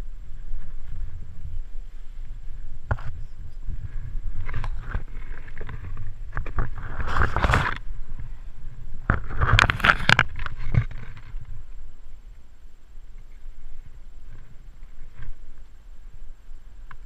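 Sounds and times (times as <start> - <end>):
leaves and undergrowth rustling: 0.0 - 17.0
low microphone rumble: 0.0 - 17.0.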